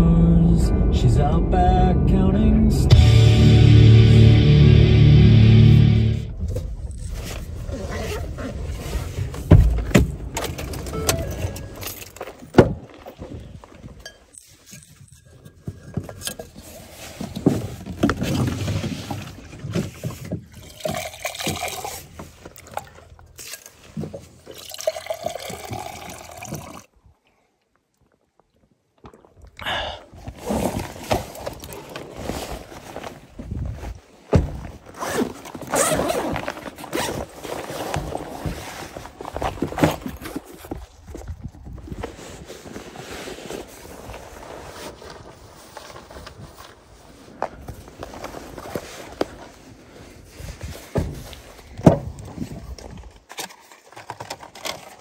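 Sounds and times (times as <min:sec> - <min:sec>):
zipper rasping: 0:06.9 - 0:09.2, 0:34.9 - 0:37.9
bag rustling: 0:30.3 - 0:51.8.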